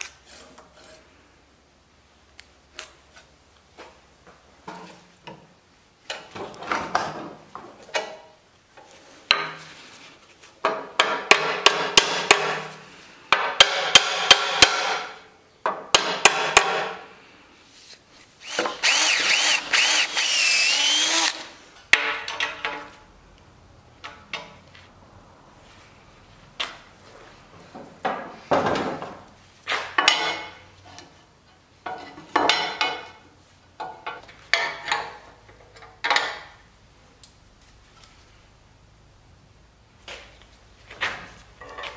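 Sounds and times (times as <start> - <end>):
hammer strikes: 10.7 - 12.7, 13.3 - 15.1
drill boring through iron: 18.4 - 21.5.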